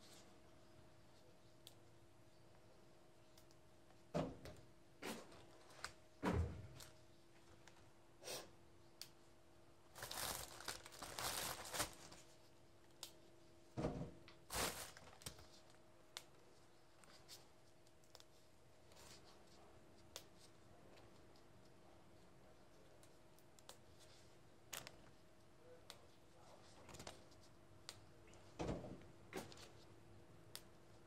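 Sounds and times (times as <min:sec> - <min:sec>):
faint steady hum: 0:00.0 - 0:31.0
plastic bag crinkling and rustling: 0:09.9 - 0:12.4, 0:14.5 - 0:15.6.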